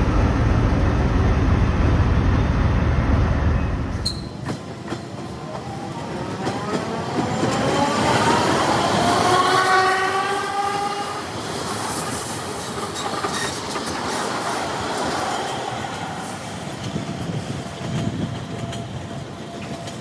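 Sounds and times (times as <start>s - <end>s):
train wheels clattering on rails: 4.0s - 20.0s.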